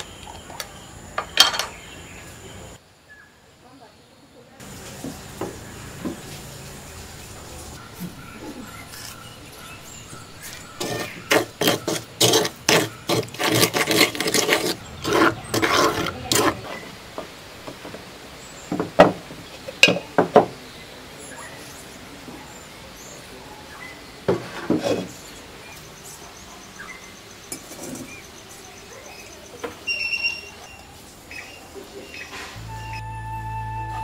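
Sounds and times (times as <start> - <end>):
wooden spoon scraping paste in bowl: 8.0 - 17.8, 24.3 - 25.3.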